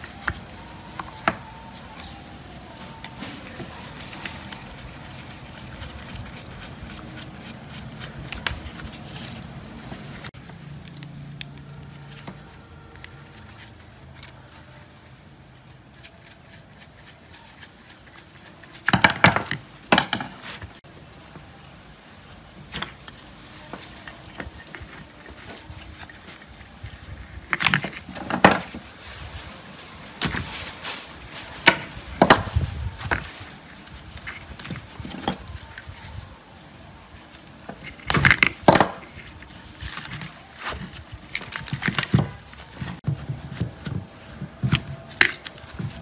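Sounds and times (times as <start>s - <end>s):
parts clattering: 22.4s - 28.9s.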